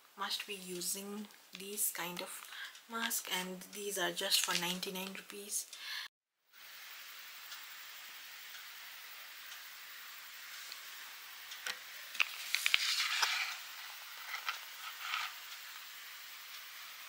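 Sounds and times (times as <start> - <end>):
packet crinkling: 4.3 - 4.8, 12.1 - 15.4.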